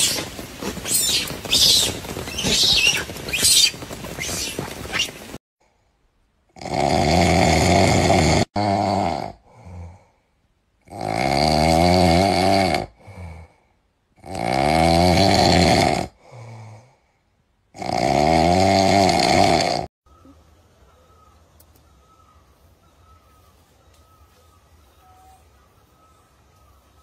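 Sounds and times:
person snoring: 6.6s - 10.2s, 10.8s - 13.6s, 17.7s - 19.9s.

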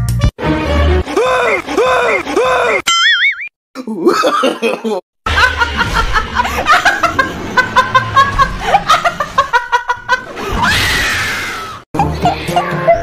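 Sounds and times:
background music: 0.0s - 2.2s
woman laughing loudly: 4.0s - 10.5s, 12.0s - 13.0s.

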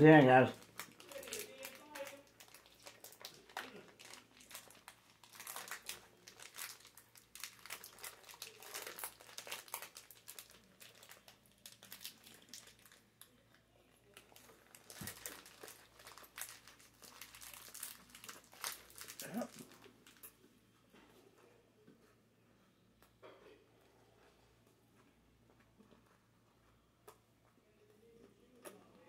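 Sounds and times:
plastic wrapper crinkling: 0.1s - 20.4s.

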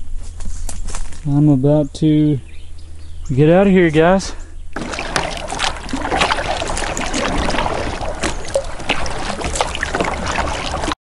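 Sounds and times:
kayak paddle dipping into water: 4.8s - 11.0s
water splashes and drips: 4.8s - 11.0s.

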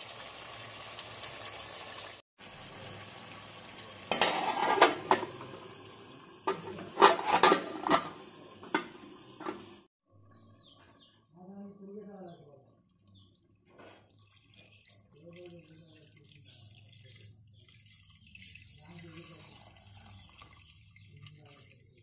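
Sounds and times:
metal plate clanking on pot: 4.1s - 5.5s, 6.5s - 9.7s.

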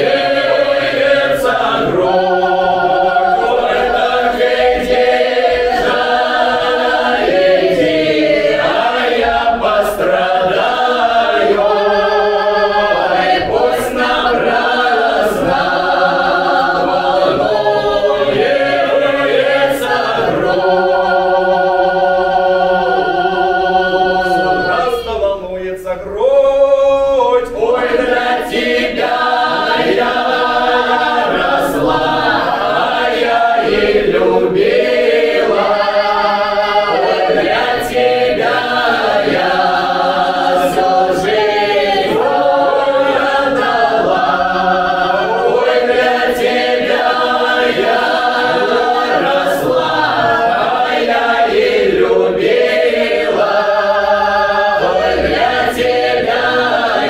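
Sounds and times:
unaccompanied folk choir singing: 0.0s - 57.0s.

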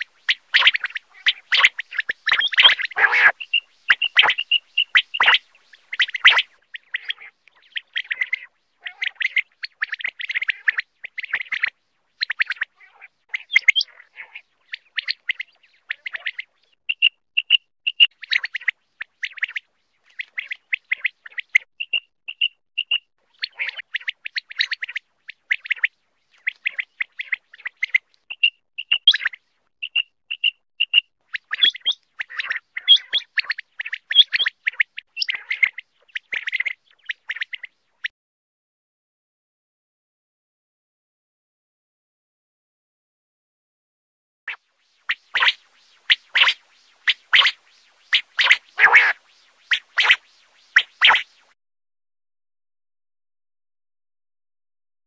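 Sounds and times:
quail calling: 0.0s - 19.6s, 20.2s - 37.7s, 45.1s - 51.3s.

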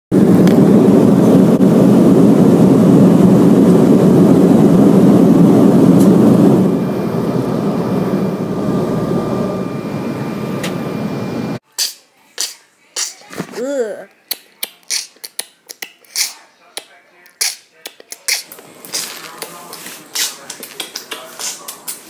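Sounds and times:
jet engine and air roar: 0.1s - 11.6s
faint steady whine: 0.2s - 11.6s.

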